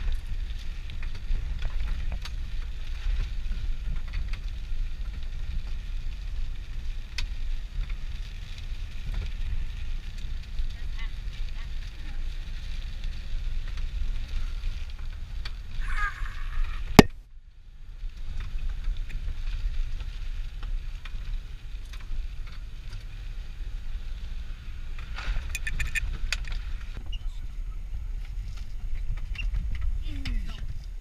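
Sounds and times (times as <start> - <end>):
vehicle rumbling on dirt track: 0.0 - 31.0
sharp clicks: 25.5 - 26.0.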